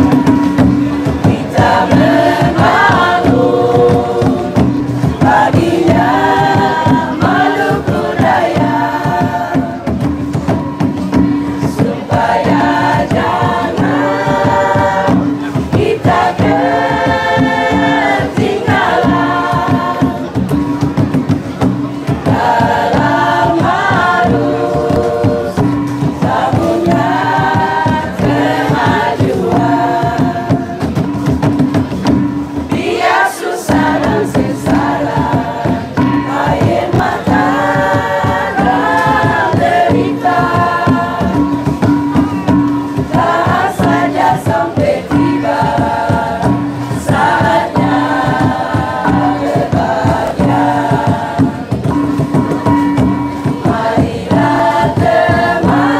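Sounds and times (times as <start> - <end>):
choir singing: 0.0 - 10.1, 11.2 - 21.2, 22.0 - 31.4, 32.6 - 55.9
drums beating steady rhythm: 0.0 - 55.9.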